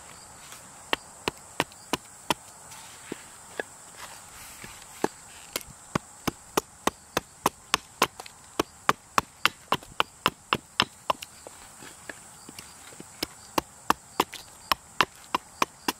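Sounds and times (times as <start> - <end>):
hatchet chopping wood: 0.9 - 2.5, 5.0 - 11.3, 13.2 - 15.9.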